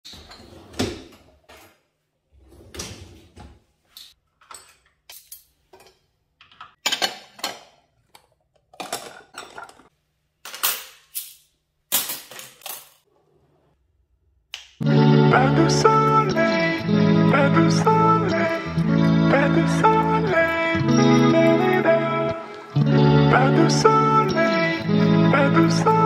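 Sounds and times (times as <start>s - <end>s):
dishes and cutlery clattering: 4.4s - 11.2s, 11.9s - 13.1s.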